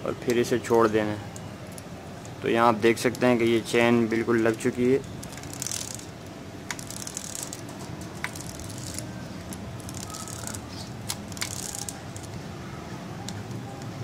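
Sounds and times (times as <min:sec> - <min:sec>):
metallic chain rattle: 0:04.5 - 0:12.3.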